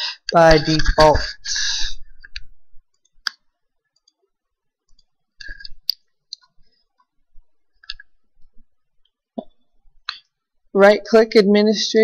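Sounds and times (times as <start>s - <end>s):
computer mouse clicks: 2.2s - 4.2s.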